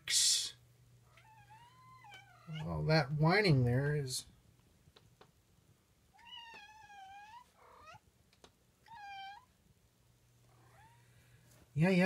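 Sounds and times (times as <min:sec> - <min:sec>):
cat meowing: 0:01.1 - 0:02.7, 0:06.1 - 0:08.0, 0:08.8 - 0:09.5.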